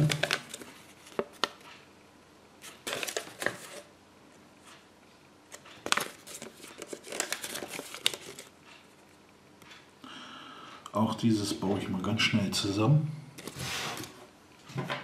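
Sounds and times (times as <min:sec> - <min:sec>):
paper rustling and crinkling: 0:00.0 - 0:01.6, 0:02.6 - 0:03.9, 0:05.8 - 0:08.5.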